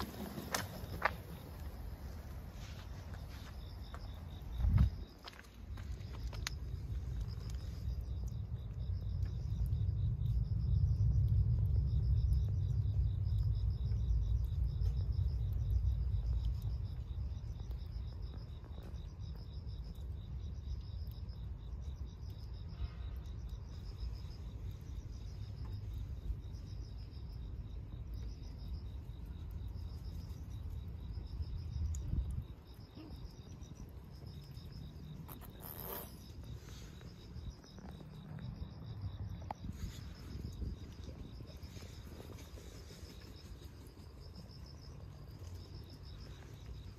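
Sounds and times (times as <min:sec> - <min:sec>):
crickets chirping: 0:00.0 - 0:46.9
low rumble: 0:05.8 - 0:18.7.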